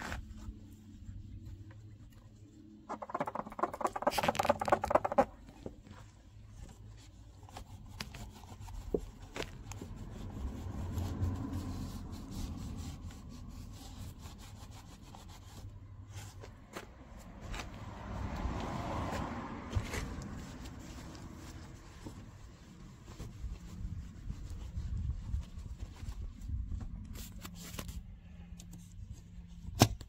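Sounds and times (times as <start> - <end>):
cloth rag rubbing car body: 0.0 - 2.8, 5.8 - 29.6
small clicks and scrapes: 1.4 - 11.9, 26.8 - 30.0.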